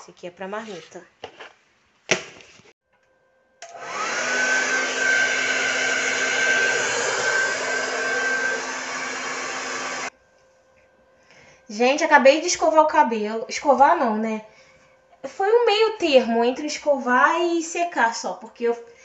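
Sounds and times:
hair dryer blowing: 0:03.6 - 0:10.1.

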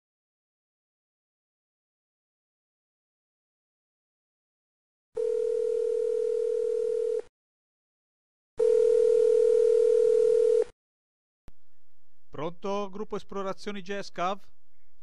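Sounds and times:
telephone ringback tone beeps: 0:05.2 - 0:07.2, 0:08.6 - 0:10.7.

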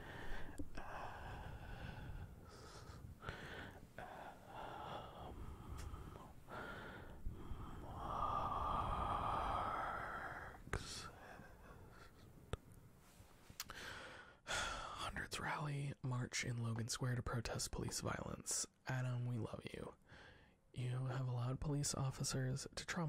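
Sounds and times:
breathing close to microphone: 0:00.0 - 0:12.3, 0:13.1 - 0:14.9, 0:20.1 - 0:20.6.

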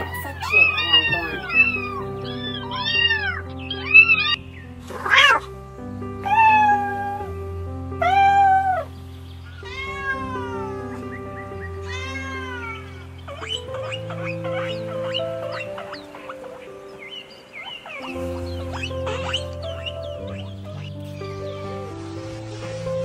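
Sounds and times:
cat meowing: 0:00.0 - 0:04.5, 0:09.6 - 0:11.1, 0:11.8 - 0:16.6
kittens meowing: 0:00.0 - 0:05.4, 0:09.5 - 0:21.0
soft background music: 0:00.0 - 0:23.0.

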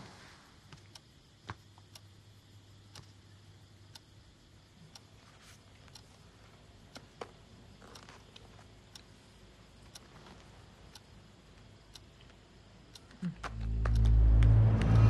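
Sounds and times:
soft clicks: 0:09.8 - 0:15.0
low hum: 0:13.3 - 0:15.0.

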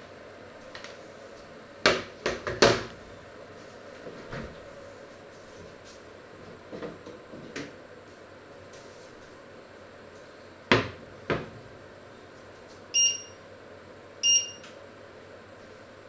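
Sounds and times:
short electronic beeps: 0:13.0 - 0:13.4, 0:14.2 - 0:14.6.

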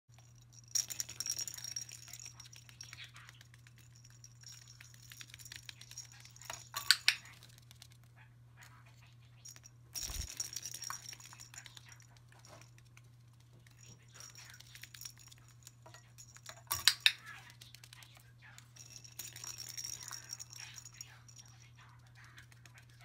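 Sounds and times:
plastic rattle ball clicking: 0:00.2 - 0:07.8, 0:13.6 - 0:18.1, 0:18.7 - 0:21.4.

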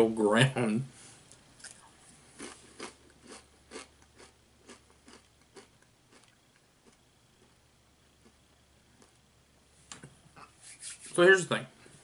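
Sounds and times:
chewing crisp chip: 0:02.4 - 0:07.6.

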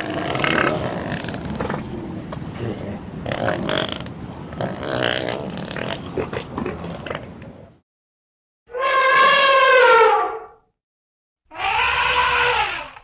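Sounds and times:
elephant wavering calls: 0:08.7 - 0:10.5, 0:11.5 - 0:13.0.

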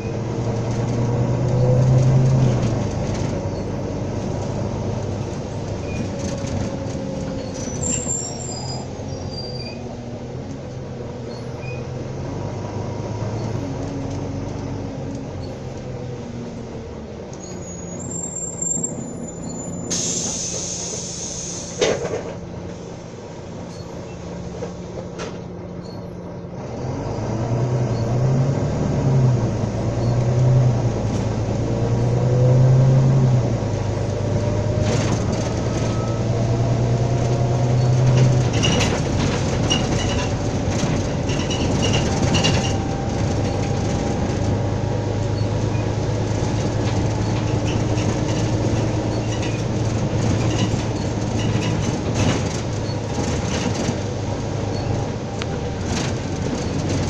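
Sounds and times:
diesel bus engine: 0:00.0 - 0:57.0
air brake hiss: 0:19.8 - 0:22.0.

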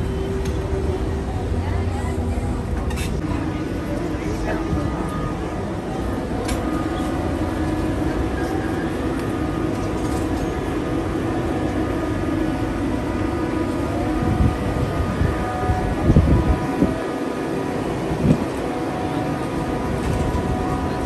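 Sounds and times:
electric hum of trams: 0:00.0 - 0:21.0.

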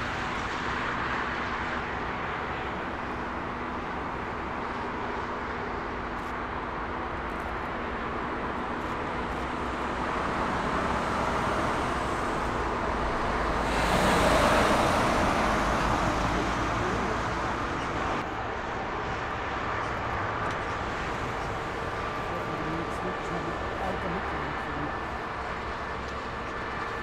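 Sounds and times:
jet airliner engine roar: 0:00.0 - 0:27.0
faint engine tones: 0:19.8 - 0:27.0.

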